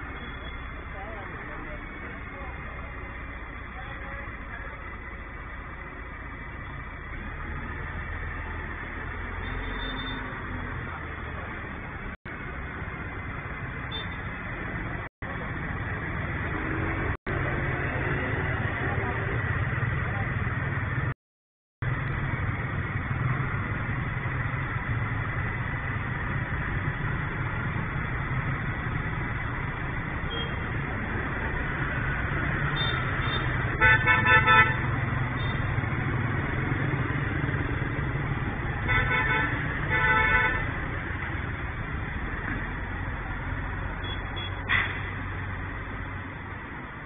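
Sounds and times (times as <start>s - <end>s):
street traffic: 0.0s - 21.2s, 21.8s - 47.0s
vehicle horn toots: 32.7s - 35.6s, 38.9s - 40.6s.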